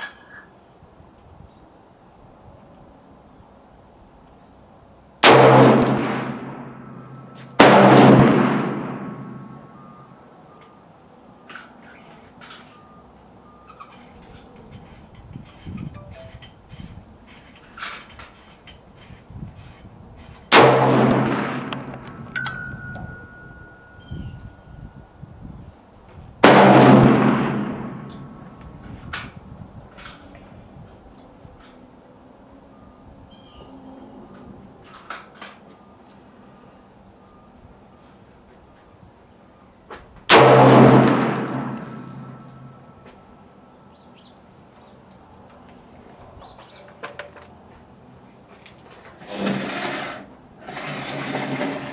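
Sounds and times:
rifle shots echoing: 0:05.2 - 0:09.7, 0:20.5 - 0:22.3, 0:26.4 - 0:28.4, 0:40.3 - 0:42.8.

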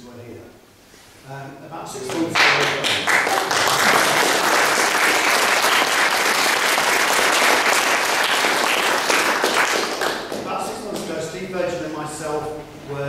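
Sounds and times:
audience applause: 0:02.1 - 0:11.0.

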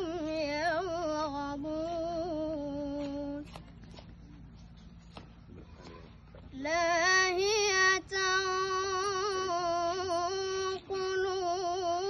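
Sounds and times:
boy chanting recitation: 0:00.0 - 0:03.5, 0:06.5 - 0:12.0.

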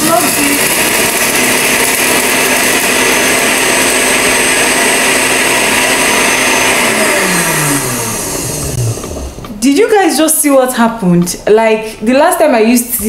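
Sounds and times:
blender motor whining: 0:00.0 - 0:09.6.

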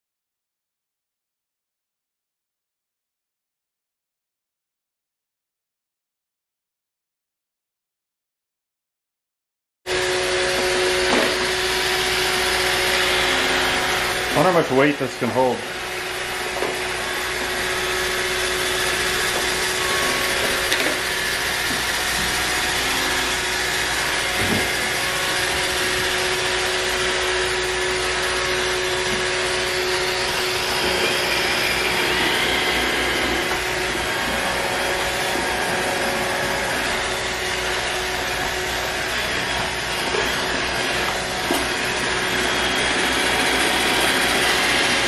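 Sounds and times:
robot vacuum whirring: 0:09.9 - 0:45.0.

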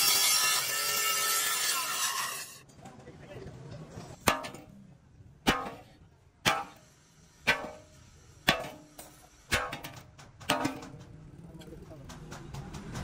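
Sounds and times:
hammer striking steel: 0:04.2 - 0:04.8, 0:05.4 - 0:11.2.

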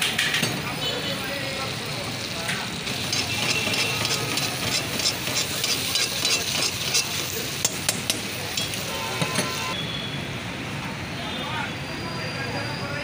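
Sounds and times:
food sizzling in a wok: 0:00.6 - 0:09.7
metal ladle scraping: 0:02.9 - 0:07.7.

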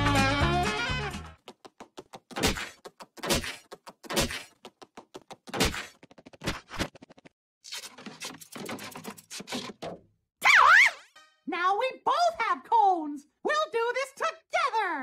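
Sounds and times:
cartoon thunks and knocks: 0:01.8 - 0:07.3, 0:08.5 - 0:10.2.

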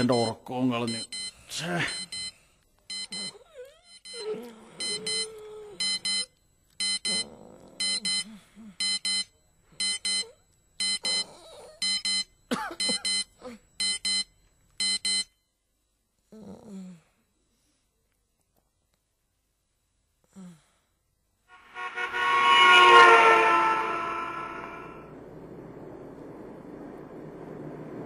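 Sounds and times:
digital alarm clock beeping: 0:00.0 - 0:04.2, 0:04.8 - 0:11.2, 0:11.8 - 0:15.4.

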